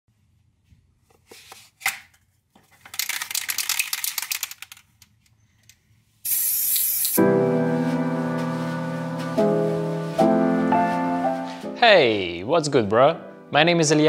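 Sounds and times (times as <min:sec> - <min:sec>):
spray can ball rattling: 0:02.8 - 0:05.0, 0:06.2 - 0:07.2
spray paint hissing: 0:06.2 - 0:07.3
spray can cap clicks: 0:06.3 - 0:07.2.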